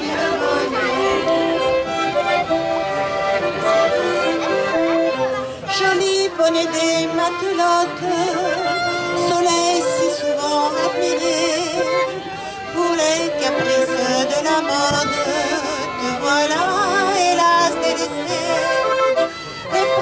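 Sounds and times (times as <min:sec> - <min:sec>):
woman singing with vibrato: 0:00.0 - 0:01.7, 0:05.7 - 0:19.0
instrumental accompaniment: 0:00.0 - 0:20.0.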